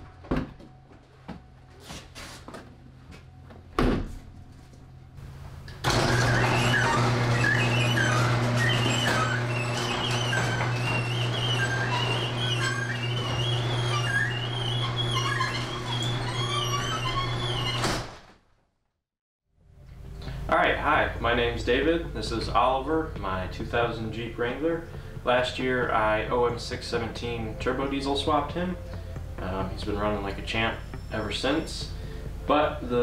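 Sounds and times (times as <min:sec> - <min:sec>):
door shutting: 0:05.7 - 0:18.4.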